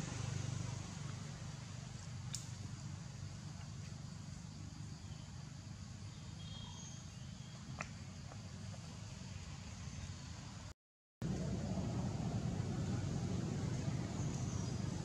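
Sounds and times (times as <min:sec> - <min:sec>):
insects hissing: 0:02.1 - 0:10.7
low rumble: 0:11.2 - 0:15.0.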